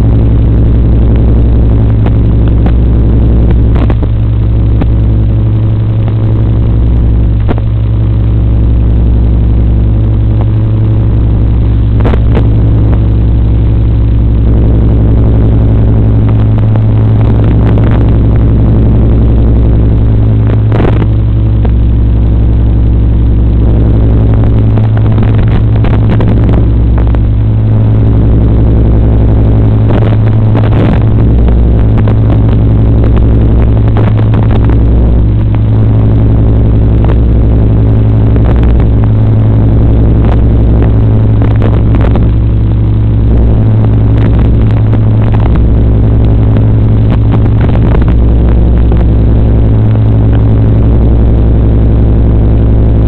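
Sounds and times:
loud low buzz: 0:00.0 - 0:53.0
short crackles: 0:09.6 - 0:22.5, 0:23.4 - 0:51.1.

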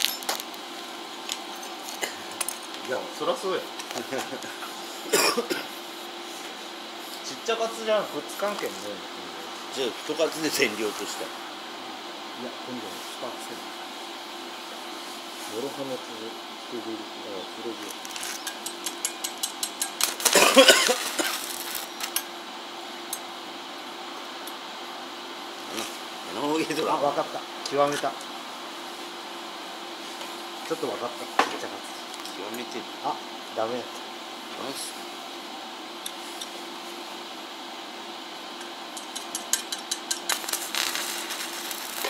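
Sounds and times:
welding arc crackling: 0:00.0 - 0:04.9, 0:17.6 - 0:22.4, 0:38.6 - 0:42.0
steady hum: 0:00.0 - 0:42.0
electrode tapping on steel: 0:18.0 - 0:20.4, 0:38.6 - 0:42.0.

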